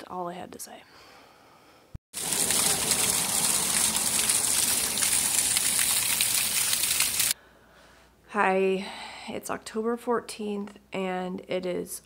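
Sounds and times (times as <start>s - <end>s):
gushing water: 2.2s - 7.4s.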